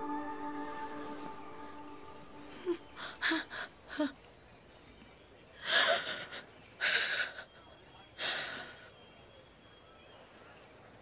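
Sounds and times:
woman sobbing: 2.4 - 4.1.

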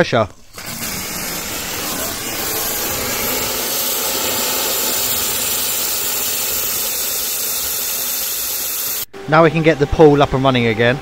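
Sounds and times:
pool pump running: 0.5 - 9.1.

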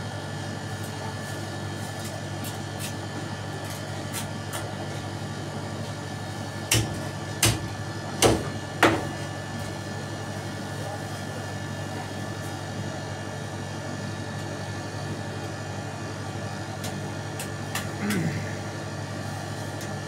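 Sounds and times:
steady machine hum: 0.0 - 20.0
knife chopping fish on board: 6.7 - 9.1.

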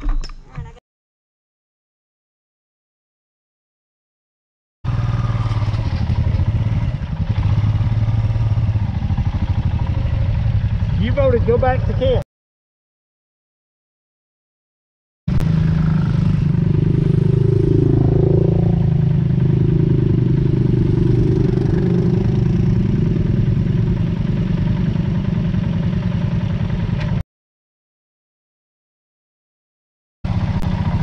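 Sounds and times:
motorcycle engine running: 4.9 - 12.2, 15.3 - 27.2, 30.3 - 31.0.

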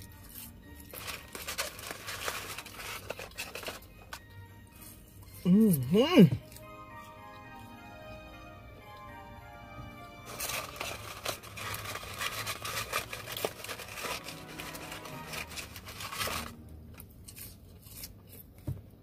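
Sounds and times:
paper wrapper crinkling: 0.0 - 4.3, 10.2 - 18.6.

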